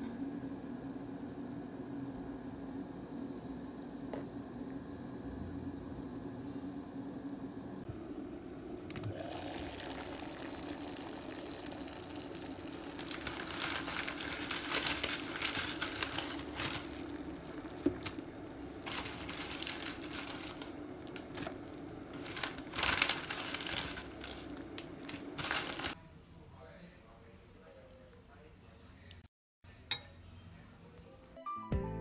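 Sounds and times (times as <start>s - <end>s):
water simmering: 0.0s - 26.0s
cooker hum: 0.0s - 31.3s
crinkling and clicks: 12.9s - 26.0s.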